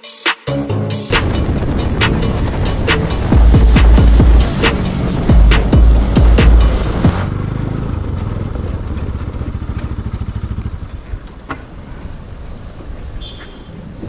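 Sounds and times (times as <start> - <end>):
background music with beat: 0.0 - 7.1
motorcycle engine idling: 1.2 - 12.1.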